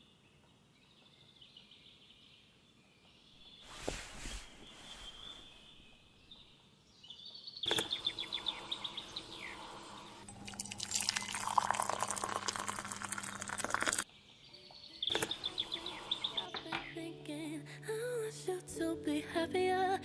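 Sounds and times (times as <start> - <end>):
small birds chirping: 0.0 - 17.1
drink pouring into cup: 10.0 - 14.0.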